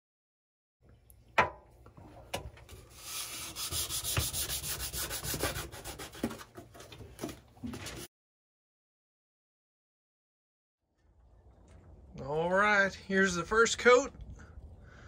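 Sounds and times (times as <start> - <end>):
hand sanding a countertop: 2.9 - 6.5.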